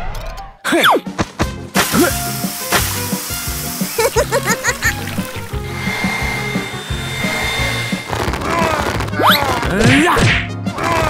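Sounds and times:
steady high whine: 5.5 - 8.5.

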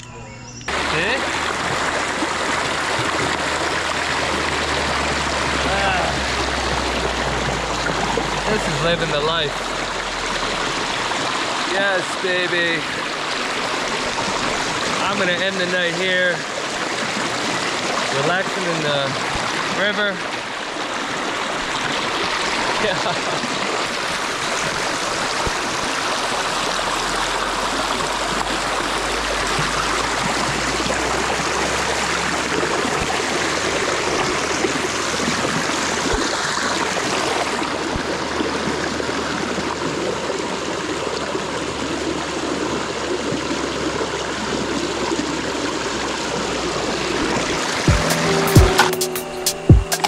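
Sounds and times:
water rushing over rocks: 0.7 - 50.0.

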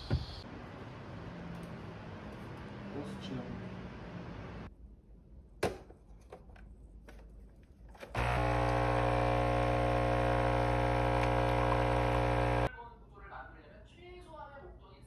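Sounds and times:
small electric motor humming: 8.2 - 12.7.

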